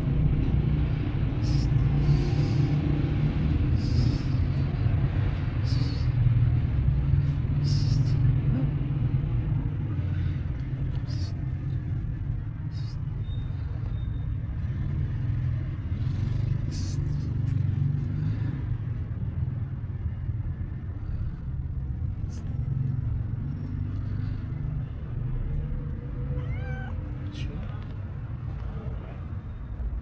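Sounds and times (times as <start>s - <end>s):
low rumble of city traffic: 0.0s - 30.0s
cat meowing: 26.2s - 27.2s.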